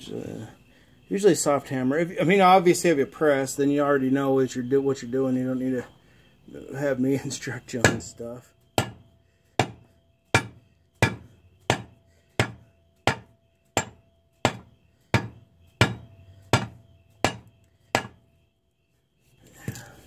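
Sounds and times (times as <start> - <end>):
hammer tapping metal spindle: 9.6 - 18.2.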